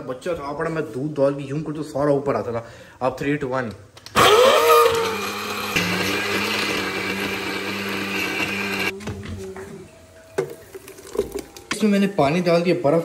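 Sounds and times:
blender whirring: 4.1s - 9.0s.

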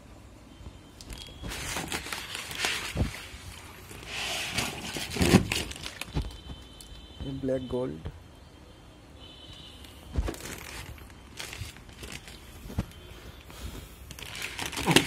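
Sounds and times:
plastic bags crinkling: 1.0s - 6.9s, 10.2s - 13.1s, 14.0s - 15.0s.

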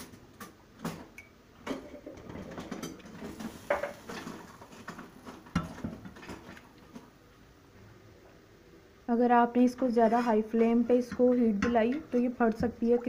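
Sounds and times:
spatula scraping saucepan: 9.8s - 12.4s.

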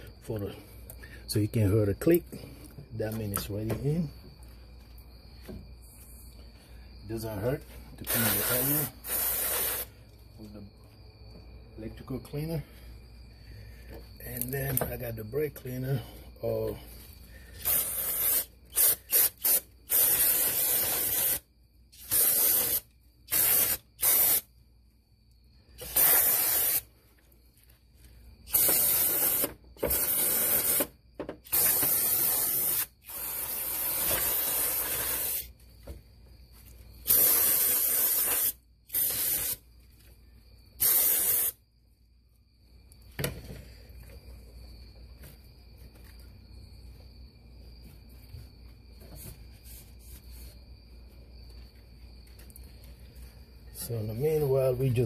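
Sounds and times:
aerosol spray hissing: 8.1s - 10.0s, 17.6s - 21.4s, 22.0s - 24.5s, 25.8s - 26.9s, 28.5s - 30.9s, 31.5s - 35.5s, 37.0s - 39.6s, 40.8s - 41.6s.

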